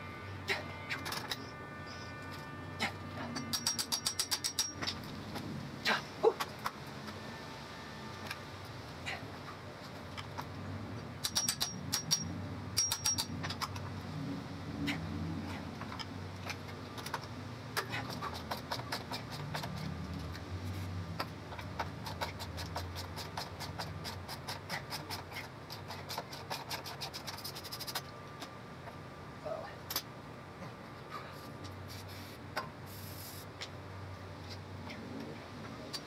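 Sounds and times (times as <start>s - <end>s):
hand ratchet clicking: 3.4s - 5.1s, 11.2s - 13.9s.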